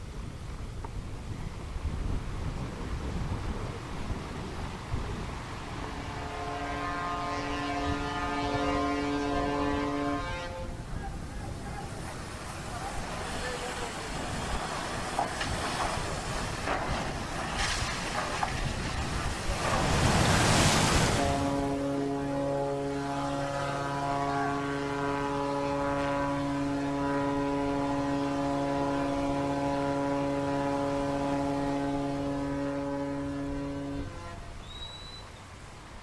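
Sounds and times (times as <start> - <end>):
ship horn blast: 5.8 - 11.6, 19.8 - 35.2.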